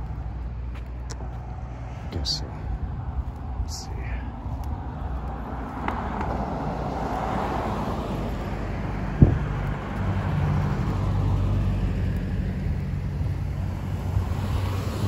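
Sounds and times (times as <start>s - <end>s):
tyre and road noise: 0.0s - 15.0s.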